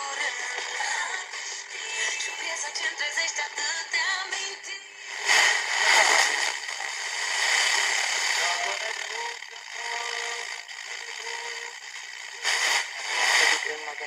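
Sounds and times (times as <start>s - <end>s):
radio static hiss: 0.0s - 14.0s
snatches of radio broadcast: 0.0s - 14.0s.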